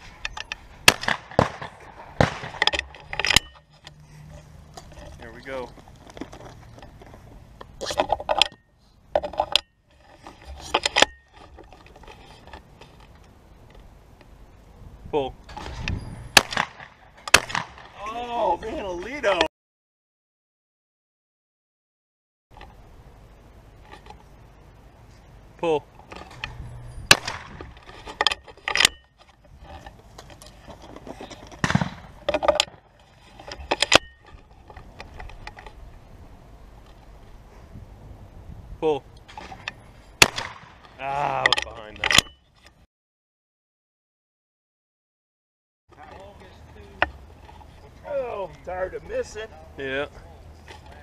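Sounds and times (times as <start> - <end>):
clicks knocks and rattles of handling: 0.0 - 8.6, 9.2 - 14.3, 26.0 - 35.8, 40.8 - 42.8
faint outdoor hiss: 0.0 - 19.5, 22.5 - 42.9, 45.9 - 51.0.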